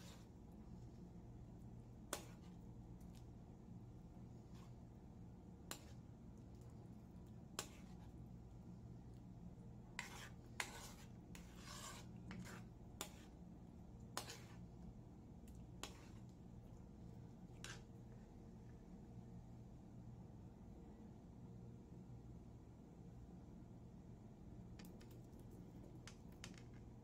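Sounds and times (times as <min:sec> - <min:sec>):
faint low hum: 0:00.0 - 0:27.0
spoon scraping metal pan: 0:09.9 - 0:13.4, 0:14.1 - 0:14.6, 0:15.8 - 0:16.2.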